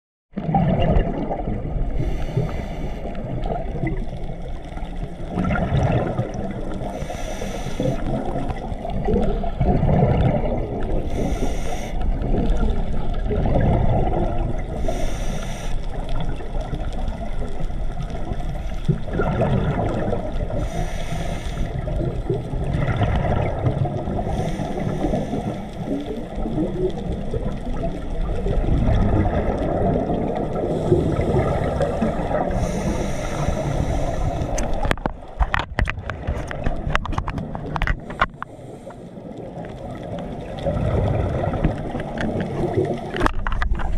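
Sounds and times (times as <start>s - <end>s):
muffled underwater rumble: 0.3s - 43.9s
regulator breathing: 2.0s - 3.2s, 6.9s - 8.1s, 11.0s - 12.2s, 14.8s - 16.0s, 20.6s - 21.9s, 30.7s - 35.0s.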